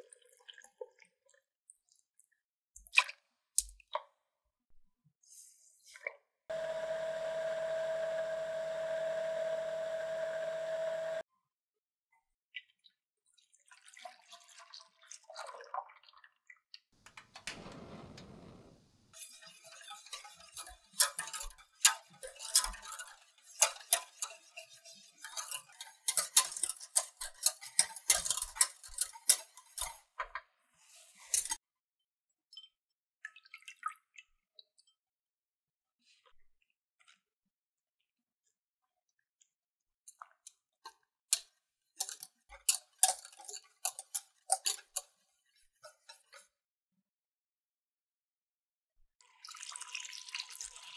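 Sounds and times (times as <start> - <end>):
electric blender running: 6.5 - 11.2
whisk scraping a steel saucepan: 19.2 - 30.1, 30.8 - 31.6, 42.0 - 46.5.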